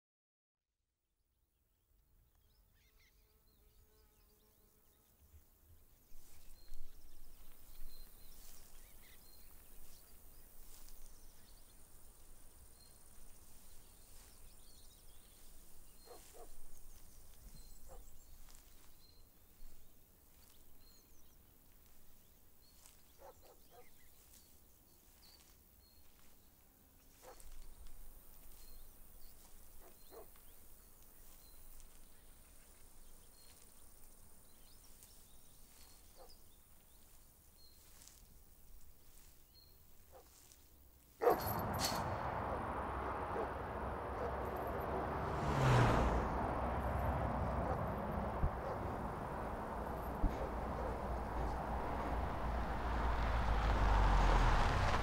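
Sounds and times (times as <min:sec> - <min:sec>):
low wind rumble: 0:41.3 - 0:55.0.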